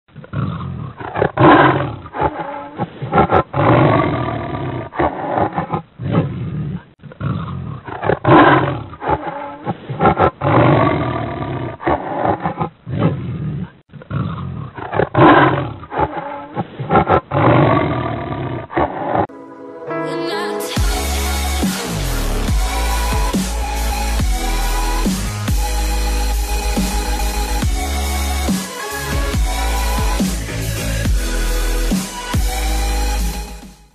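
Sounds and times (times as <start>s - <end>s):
tiger roaring and growling: 0.1s - 19.3s
electronic stepped rising tones: 19.3s - 33.8s
background music: 19.3s - 33.9s.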